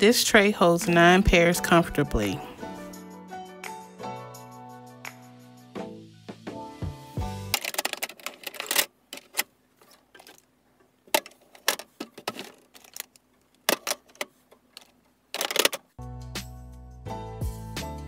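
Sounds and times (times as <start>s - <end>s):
sunglasses clattering on plastic: 7.5s - 15.9s.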